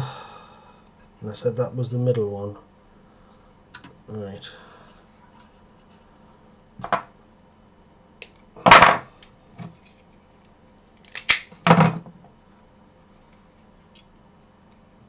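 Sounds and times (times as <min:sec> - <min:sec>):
wires and tools rustling: 0:08.3 - 0:11.4.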